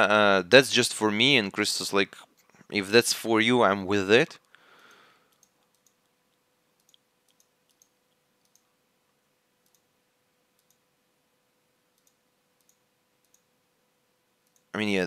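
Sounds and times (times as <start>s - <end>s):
faint steady hum: 0.0s - 15.0s
faint irregular clicks: 4.4s - 8.7s, 9.6s - 9.9s, 10.5s - 10.9s, 11.9s - 13.5s, 14.4s - 14.8s.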